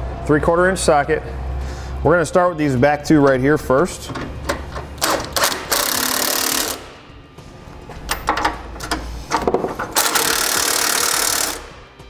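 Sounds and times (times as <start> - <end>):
impact wrench hammering: 4.1 - 7.0, 7.9 - 11.8.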